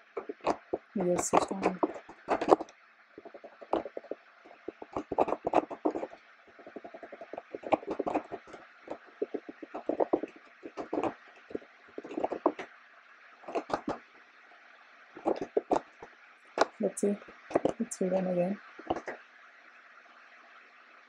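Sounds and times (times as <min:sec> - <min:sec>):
faint steady hum: 0:00.0 - 0:21.0
typing on a computer keyboard: 0:00.2 - 0:12.7, 0:13.5 - 0:14.0, 0:15.2 - 0:15.9.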